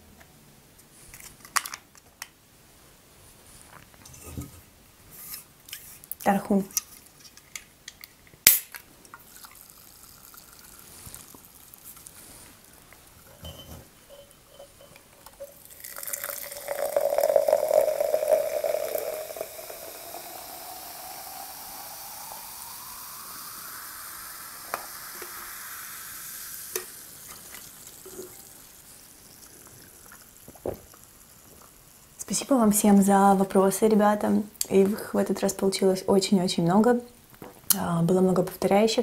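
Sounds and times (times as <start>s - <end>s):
fizzing carbonation hiss: 8.4s - 33.8s
soda pouring into glass: 9.2s - 32.5s.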